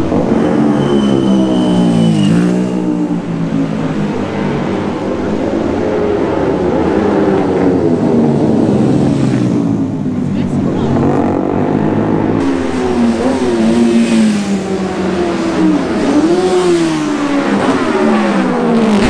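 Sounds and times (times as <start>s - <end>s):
racing motorcycles speeding past: 0.0s - 10.0s, 10.9s - 19.0s.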